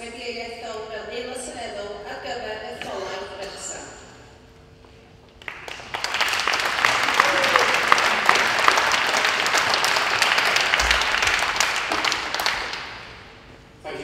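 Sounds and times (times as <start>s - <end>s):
crowd applauding: 5.4s - 13.4s.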